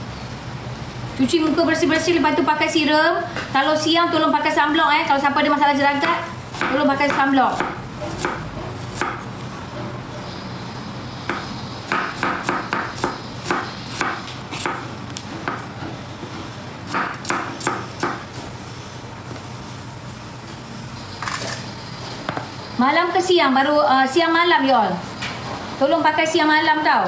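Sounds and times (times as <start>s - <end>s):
knife chopping on cutting board: 6.0s - 9.2s, 11.3s - 15.9s, 16.9s - 18.2s.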